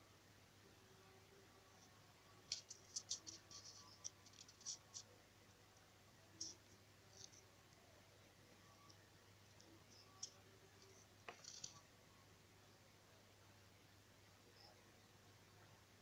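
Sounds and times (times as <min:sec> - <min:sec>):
faint clicks and scratches: 0:01.0 - 0:11.9.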